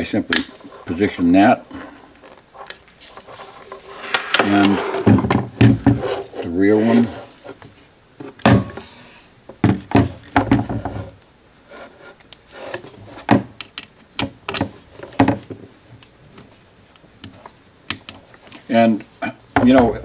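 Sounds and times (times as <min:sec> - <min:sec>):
rubbing of rifle stock and sling: 0:00.4 - 0:08.9, 0:11.7 - 0:13.3.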